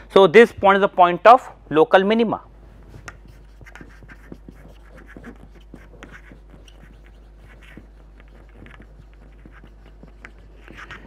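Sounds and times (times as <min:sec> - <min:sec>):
marker writing on whiteboard: 0:02.8 - 0:11.0.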